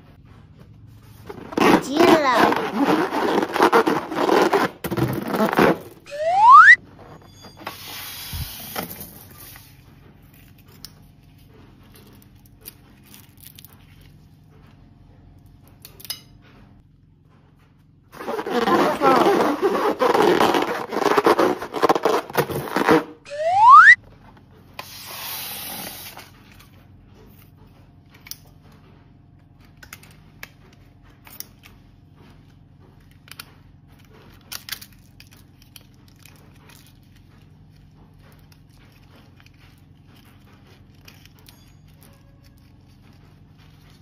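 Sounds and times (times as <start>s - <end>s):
rising whistle-like glide: 6.1s - 6.8s, 23.3s - 24.0s.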